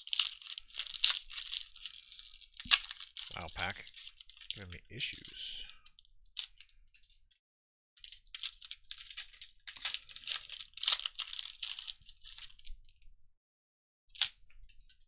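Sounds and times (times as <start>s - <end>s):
foil wrapper crinkling and tearing: 0.0s - 5.4s, 8.0s - 12.7s.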